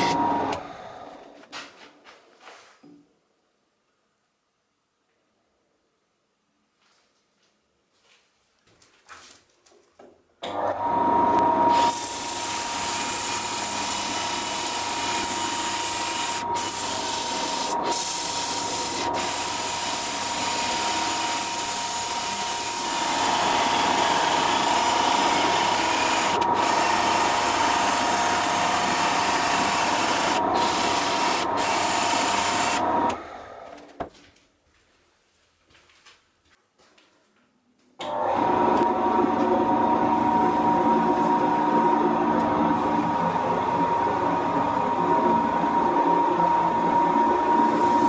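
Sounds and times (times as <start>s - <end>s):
drill motor whine: 0.0s - 1.2s, 10.8s - 33.8s.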